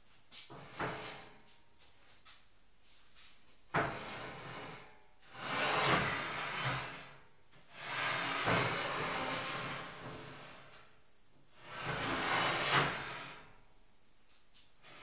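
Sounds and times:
tank scraping against metal frame: 0:03.9 - 0:10.7, 0:11.6 - 0:13.6.

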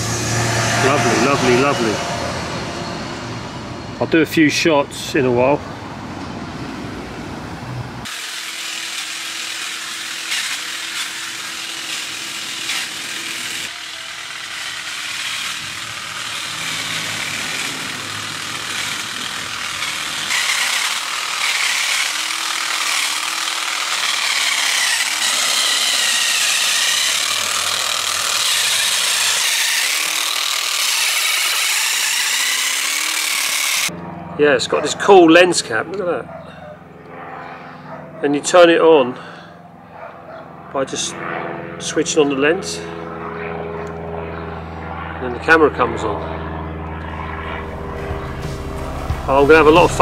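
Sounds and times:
hedge trimmer motor running: 0:08.0 - 0:34.0, 0:46.8 - 0:50.0.

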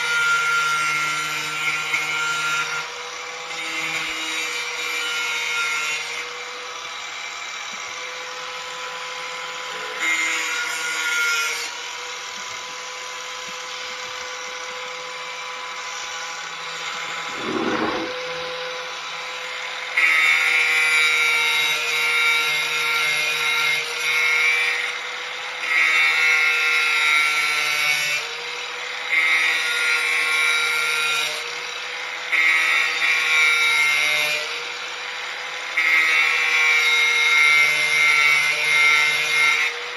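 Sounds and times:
angle grinder whining: 0:01.8 - 0:21.2
disc grinding steel blade: 0:14.0 - 0:19.0.

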